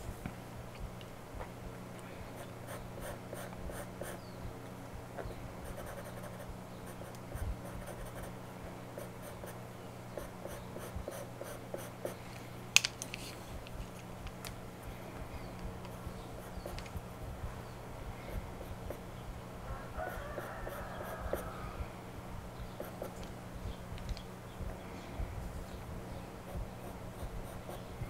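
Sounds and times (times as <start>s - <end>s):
pencil scratching on paper: 5.6s - 8.3s.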